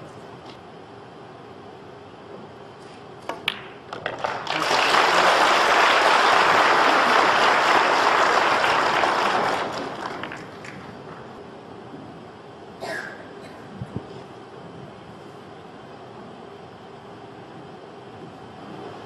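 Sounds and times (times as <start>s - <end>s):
pool balls clicking: 3.2s - 4.6s
audience applause: 4.2s - 11.4s.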